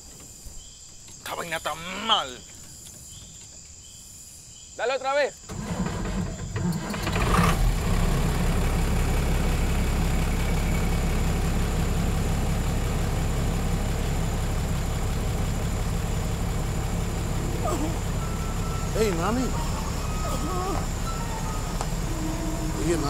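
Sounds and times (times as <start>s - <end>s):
bus engine starting and idling: 5.4s - 23.0s.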